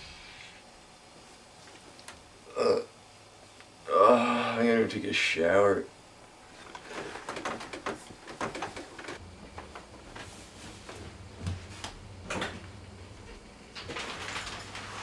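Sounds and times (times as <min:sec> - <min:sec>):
rustling and clicks of bedding: 0:06.5 - 0:15.0
knocks of movement: 0:06.6 - 0:10.0.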